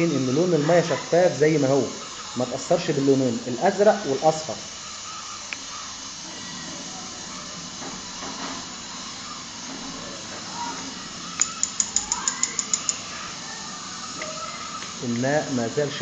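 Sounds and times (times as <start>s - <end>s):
sharp clicks: 4.9s - 6.2s, 11.2s - 15.4s.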